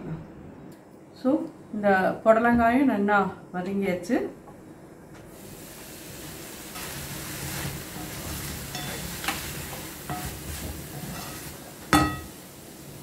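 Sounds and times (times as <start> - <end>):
vegetables sizzling in a pan: 5.3 - 13.0.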